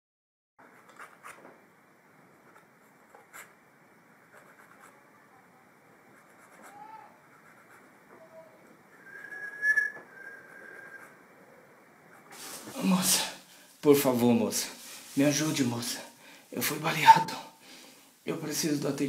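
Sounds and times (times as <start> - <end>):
person whistling: 8.9 - 11.2.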